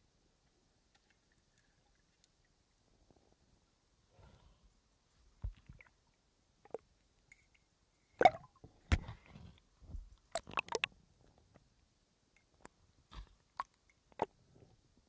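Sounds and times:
watery squelches: 10.2s - 10.9s.

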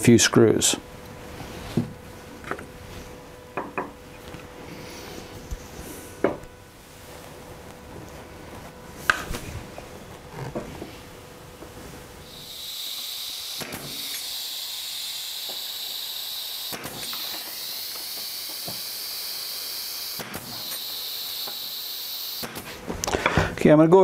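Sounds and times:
brad nailer shots: 12.3s - 22.8s.

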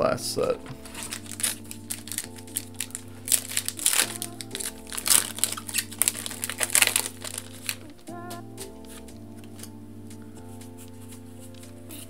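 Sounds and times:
background music with bass line: 0.0s - 12.0s
foil wrapper crinkling: 0.8s - 8.0s.

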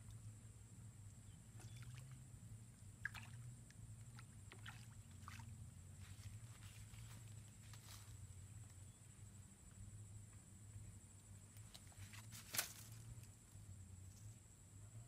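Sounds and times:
low steady hum: 0.0s - 15.0s
fish splashing at water surface: 3.0s - 3.5s, 4.2s - 5.5s.

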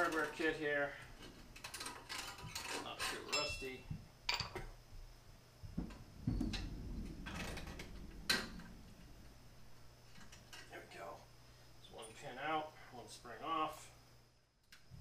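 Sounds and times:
dull thump: 5.7s - 9.7s.

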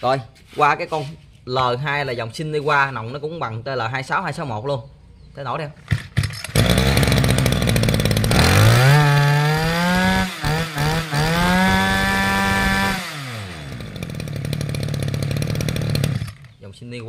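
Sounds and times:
brush cutter engine revving: 5.9s - 16.6s.

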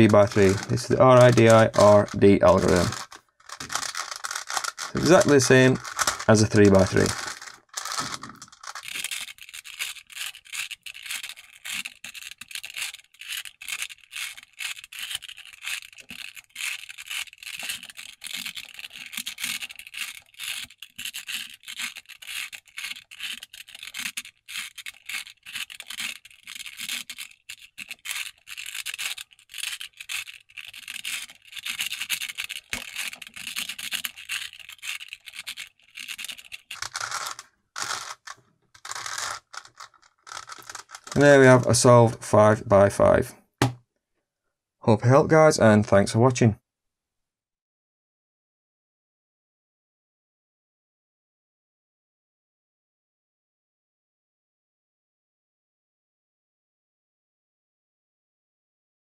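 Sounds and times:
puzzle cube clicking and scraping: 0.0s - 42.0s.

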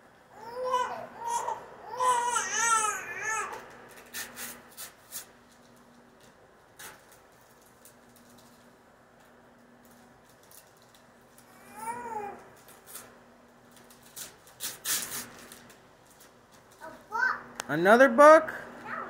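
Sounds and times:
young child babbling: 0.4s - 3.6s, 11.6s - 12.5s, 16.8s - 17.5s, 18.8s - 19.0s.

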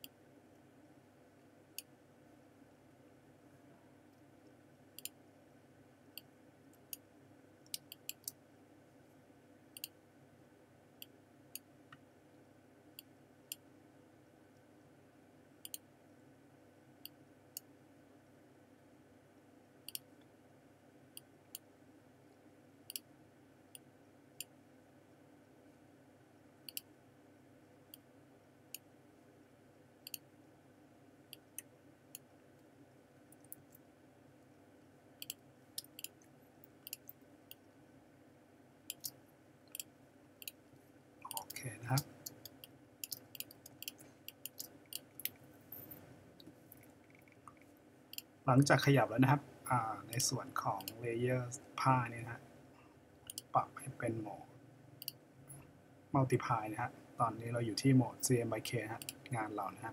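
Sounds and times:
faint steady hum: 0.0s - 59.9s
computer mouse clicking: 7.7s - 8.4s, 15.6s - 15.8s, 30.0s - 30.2s, 35.2s - 36.2s, 36.8s - 37.6s, 38.9s - 40.6s, 41.3s - 45.4s, 53.2s - 53.5s, 59.0s - 59.3s.

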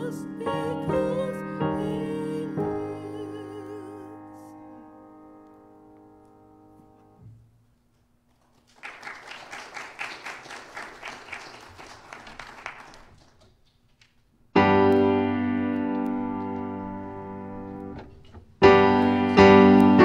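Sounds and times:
piano chord ringing: 0.0s - 7.3s, 14.6s - 20.0s
congregation applauding: 8.4s - 14.2s.

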